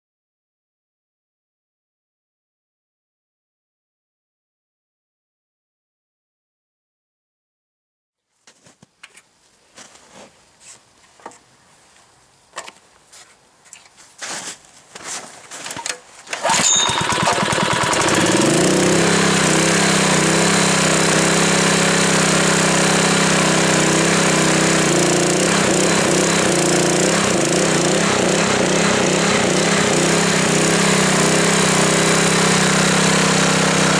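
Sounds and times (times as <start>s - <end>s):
petrol engine starting and running: 16.3s - 33.9s.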